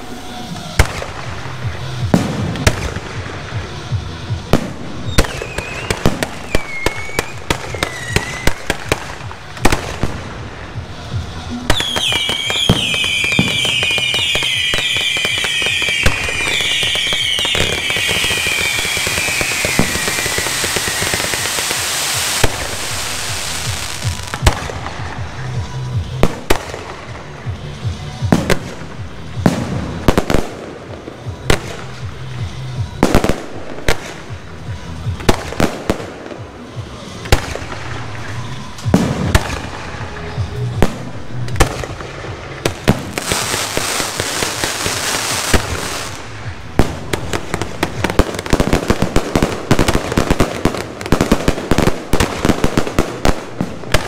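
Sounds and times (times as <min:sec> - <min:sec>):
firework fountains hissing: 0:11.8 - 0:25.5.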